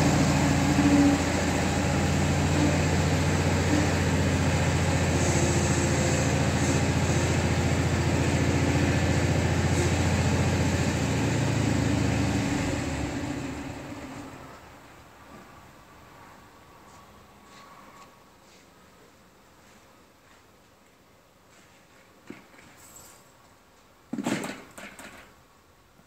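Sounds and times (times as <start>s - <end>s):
tractor engine idling: 0.0s - 14.6s.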